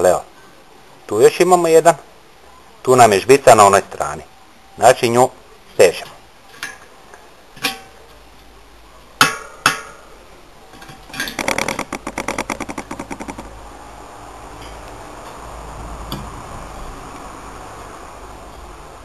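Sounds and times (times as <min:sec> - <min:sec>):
bicycle wheel whirring: 0:11.4 - 0:13.6
rapid even ticking: 0:11.4 - 0:13.6.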